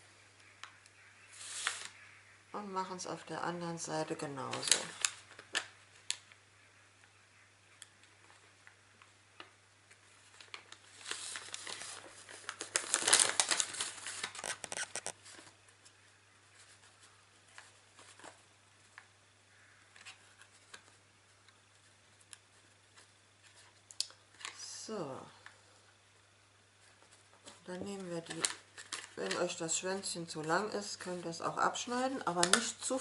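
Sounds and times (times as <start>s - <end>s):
paper rustling and crinkling: 1.3s - 2.0s, 4.0s - 6.4s, 8.0s - 19.2s, 19.9s - 21.0s, 21.8s - 24.6s, 26.8s - 33.0s.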